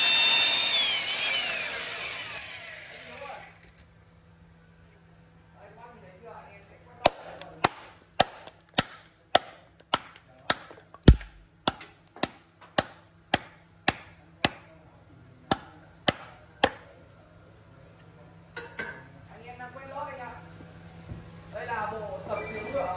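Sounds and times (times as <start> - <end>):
hand tool striking wood: 7.1 - 14.6, 15.5 - 16.8
dull low thud: 11.1 - 11.4.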